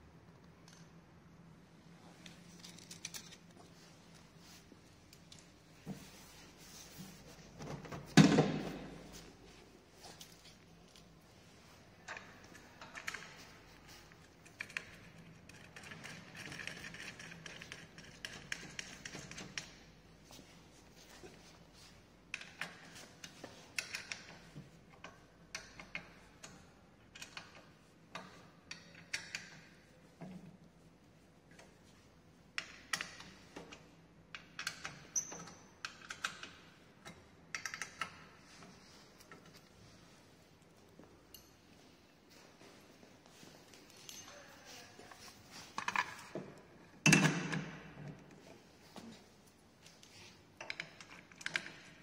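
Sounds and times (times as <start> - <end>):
bolts clicking as tightened: 32.6 - 38.3.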